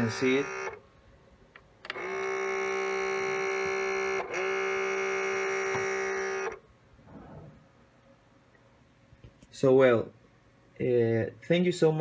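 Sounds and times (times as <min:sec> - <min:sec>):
cassette deck loud buzz: 0:00.0 - 0:00.8, 0:01.9 - 0:06.6.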